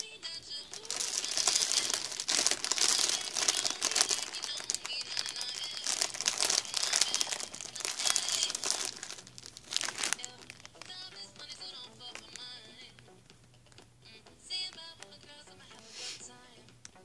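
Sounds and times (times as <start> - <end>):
plastic packaging crinkling: 0.0 - 13.1.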